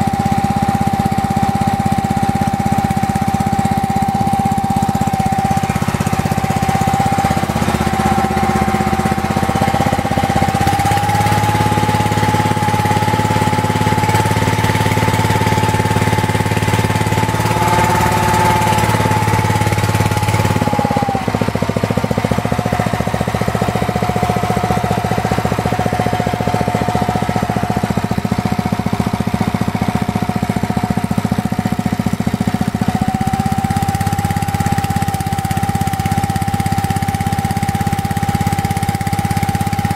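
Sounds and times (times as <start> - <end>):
high whine: 0.0 - 29.2
small petrol engine running: 0.0 - 39.9.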